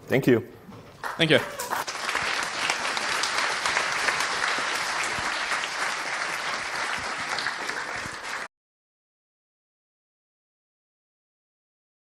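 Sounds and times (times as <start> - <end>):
audience applauding: 1.0 - 8.5.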